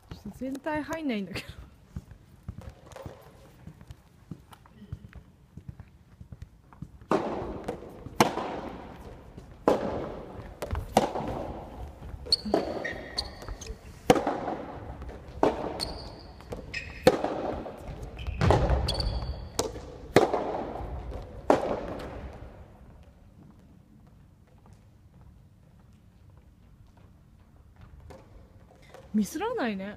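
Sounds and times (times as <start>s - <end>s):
sneakers squeaking on floor: 1.8s - 22.6s
ball bouncing on wooden floor: 1.9s - 23.1s
racket hitting ball: 6.8s - 22.6s.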